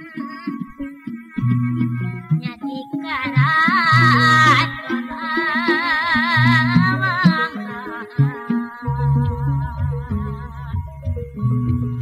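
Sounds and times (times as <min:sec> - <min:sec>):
wavering melodic line: 0:00.0 - 0:12.0
woman singing with vibrato: 0:00.0 - 0:12.0
low pitched notes: 0:08.8 - 0:12.0.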